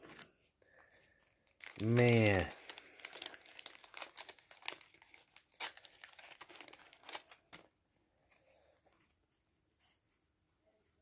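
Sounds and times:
wax paper crinkling and tearing: 1.4s - 7.7s.

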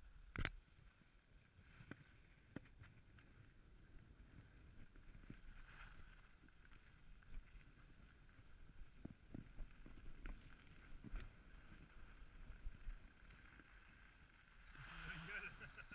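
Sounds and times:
skis sliding on snow: 4.5s - 15.9s.

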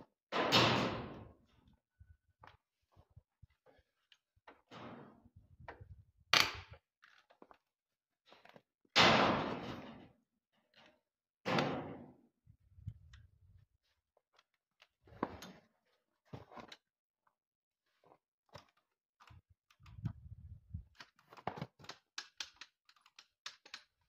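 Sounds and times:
hands clicking and knocking on motorcycle: 21.6s - 24.0s.

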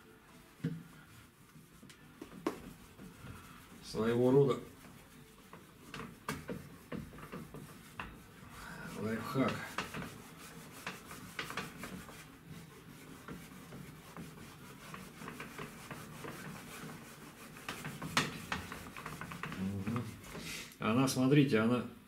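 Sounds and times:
cloth scrubbing plastic panel: 2.0s - 20.6s.

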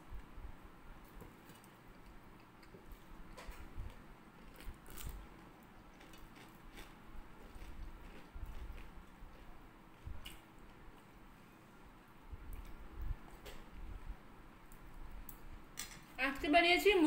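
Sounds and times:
quiet chewing: 1.0s - 11.1s.

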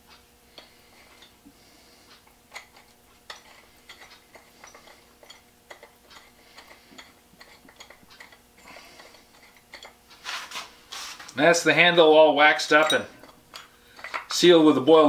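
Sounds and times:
faint rubbing: 10.2s - 11.3s.

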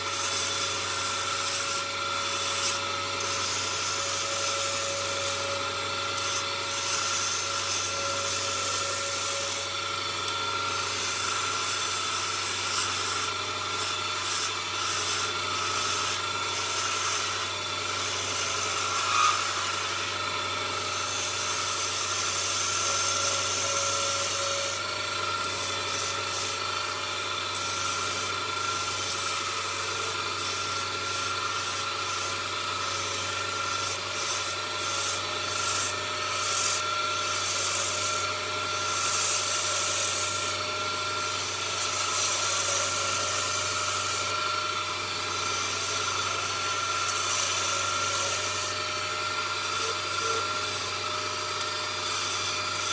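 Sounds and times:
wood lathe whine: 0.0s - 52.9s
turning tool scraping wood: 18.3s - 19.8s, 45.6s - 52.9s.

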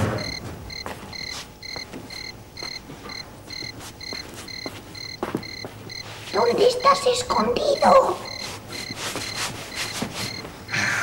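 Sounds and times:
cricket chirping: 0.2s - 6.1s, 7.6s - 10.4s.

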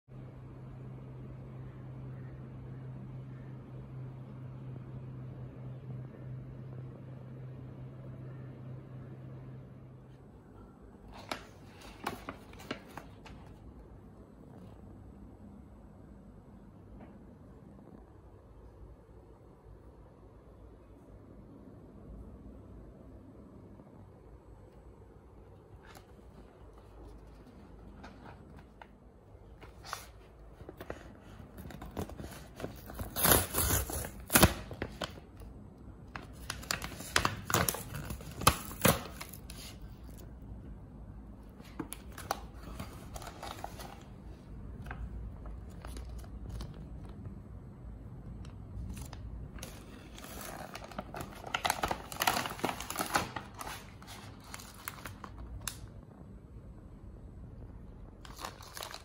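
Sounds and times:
plastic packaging crinkling: 11.1s - 13.6s, 25.8s - 35.5s, 36.1s - 40.3s, 41.6s - 47.2s, 48.8s - 55.9s, 58.2s - 59.0s
pouch being torn open: 31.5s - 35.2s, 36.4s - 40.2s, 48.9s - 55.8s, 58.2s - 59.0s.

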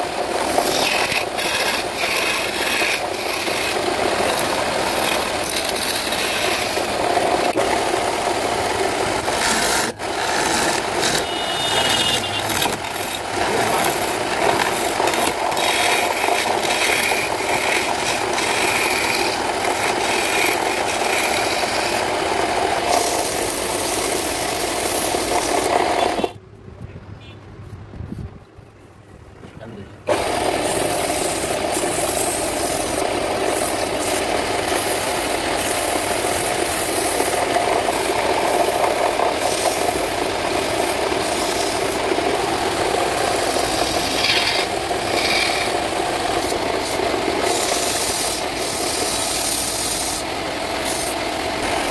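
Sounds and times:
chisel scraping spinning wood: 0.0s - 26.4s, 30.1s - 51.9s
wood lathe running: 0.0s - 26.4s, 30.1s - 51.9s.

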